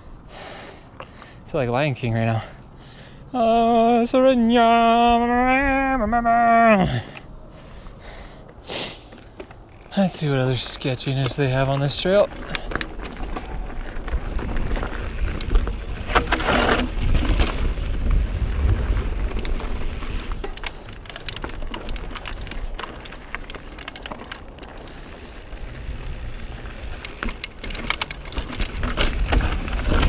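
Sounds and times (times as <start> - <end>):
bike chain and frame rattling: 9.3 - 30.0
tyres rolling over rock: 10.6 - 30.0
wind rumble on microphone: 13.2 - 23.3.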